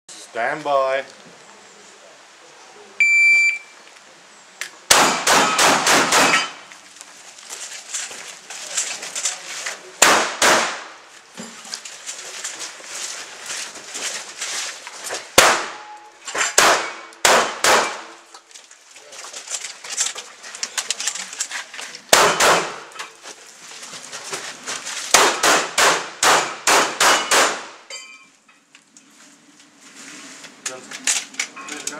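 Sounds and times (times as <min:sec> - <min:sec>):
shotgun shots: 0:04.9 - 0:06.6, 0:10.0 - 0:11.0, 0:15.4 - 0:15.9, 0:16.6 - 0:18.1, 0:22.1 - 0:22.9, 0:25.1 - 0:27.8.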